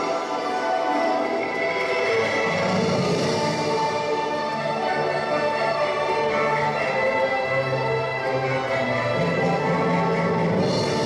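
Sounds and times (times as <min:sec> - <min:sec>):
orchestral strings sustained notes: 0:00.0 - 0:11.0.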